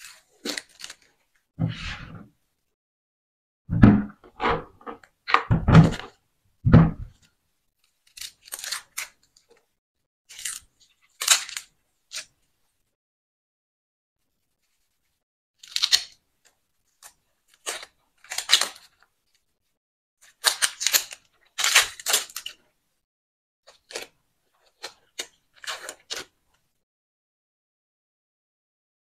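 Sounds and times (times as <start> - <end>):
onion skin crackling: 7.9 - 9.5.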